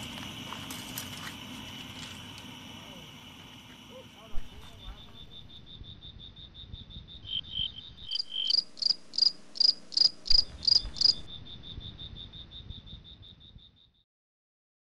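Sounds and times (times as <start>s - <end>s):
crickets chirping: 0.0s - 14.0s
louder higher chirping: 7.2s - 11.6s.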